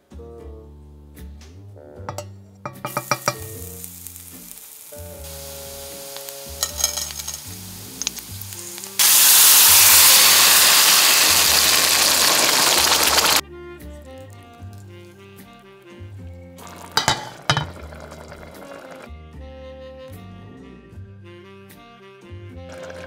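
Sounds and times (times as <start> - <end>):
background music: 0.0 - 11.9, 12.8 - 23.0
garlic sizzling in oil: 2.1 - 13.4, 16.6 - 19.1, 22.7 - 23.0
loud sizzle in a pan: 2.1 - 13.4, 16.6 - 19.1, 22.7 - 23.0.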